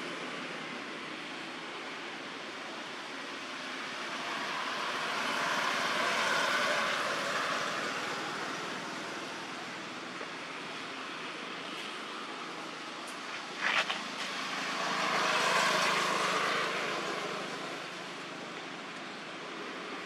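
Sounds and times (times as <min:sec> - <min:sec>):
steady background noise: 0:00.0 - 0:20.0
vehicle passing by: 0:03.8 - 0:09.2, 0:13.5 - 0:18.4.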